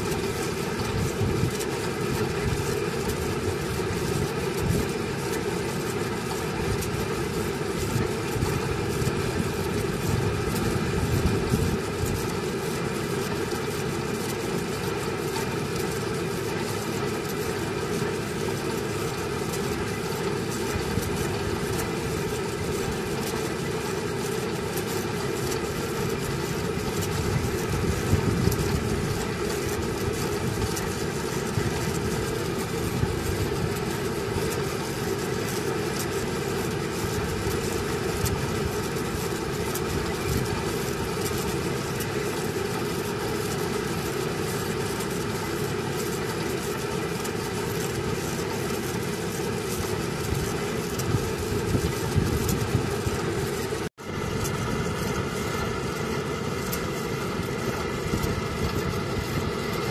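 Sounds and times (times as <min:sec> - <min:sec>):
drilling rig engine running: 0:00.0 - 0:59.9.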